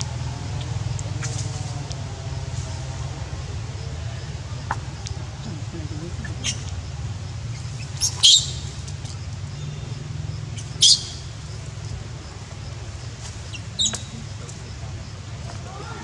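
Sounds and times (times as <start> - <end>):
steady low hum: 0.0 - 16.0
infant monkey squealing: 13.5 - 14.3.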